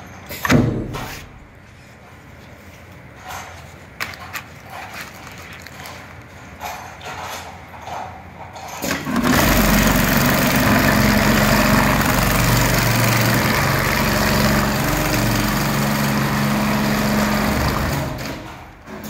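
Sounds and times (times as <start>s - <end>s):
sewing machine stitching rapidly: 8.8s - 19.0s.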